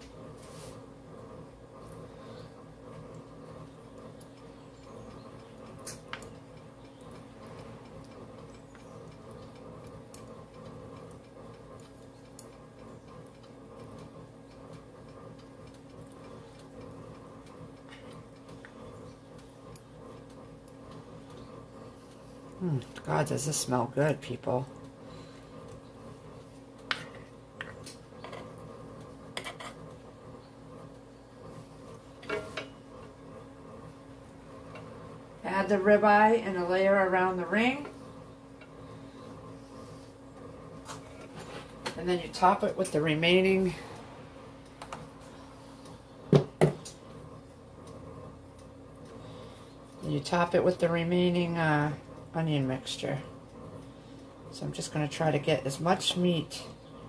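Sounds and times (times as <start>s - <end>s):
steady low hum: 0.0s - 57.0s
soft regular ticks: 1.8s - 32.1s, 46.8s - 50.1s, 53.0s - 54.9s
spatula tapping and scraping: 26.5s - 28.6s, 29.3s - 29.9s, 32.2s - 32.8s.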